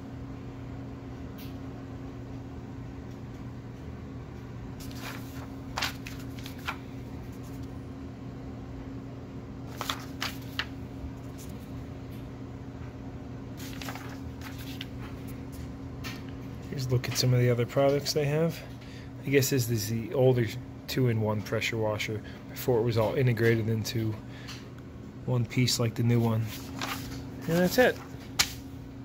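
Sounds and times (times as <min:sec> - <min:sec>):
steady low hum: 0:00.0 - 0:29.0
paper pages turning: 0:04.8 - 0:07.8, 0:09.7 - 0:11.8, 0:13.6 - 0:16.2, 0:26.2 - 0:28.7.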